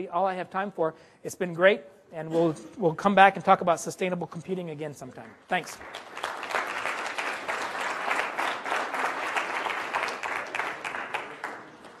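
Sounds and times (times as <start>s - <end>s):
audience applauding: 5.5s - 12.0s.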